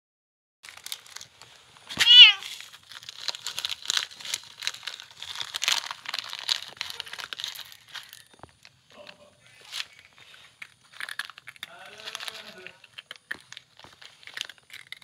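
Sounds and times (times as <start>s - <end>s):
plastic sachet crinkling: 0.6s - 15.0s
cat meowing: 1.9s - 2.5s.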